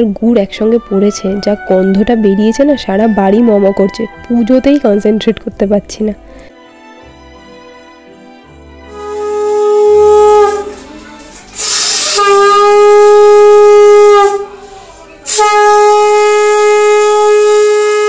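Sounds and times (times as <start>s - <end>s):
conch shell blasts: 8.8s - 18.0s.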